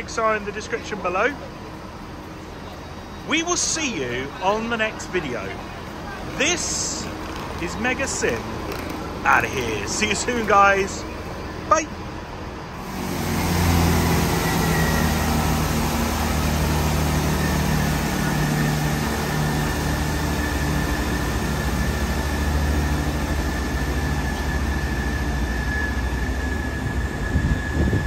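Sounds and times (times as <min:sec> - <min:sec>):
diesel engines throbbing drone: 0:00.0 - 0:28.0
faint high whine: 0:09.2 - 0:28.0.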